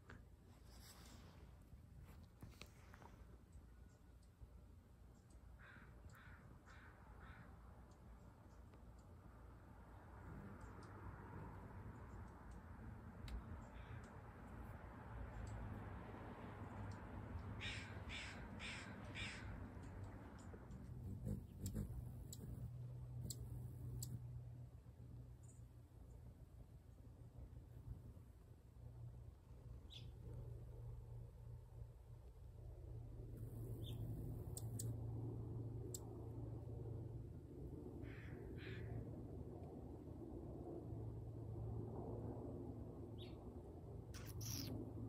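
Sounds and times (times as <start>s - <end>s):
crow cawing: 5.6s - 7.5s, 17.6s - 19.5s, 38.0s - 39.0s
hummingbird wings humming: 10.2s - 13.5s, 20.4s - 24.4s, 33.2s - 35.1s, 44.2s - 44.7s.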